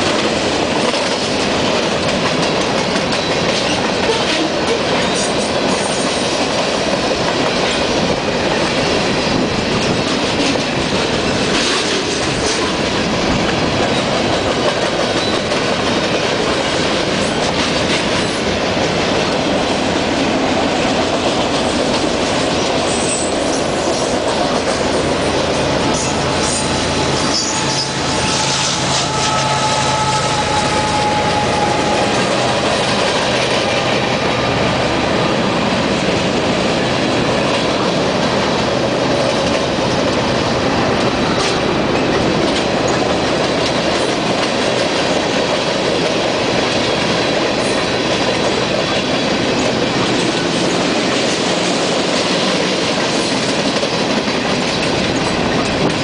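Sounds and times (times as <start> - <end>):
freight train wheels rumbling: 0.0 - 56.0
wheel squeal: 25.9 - 32.2.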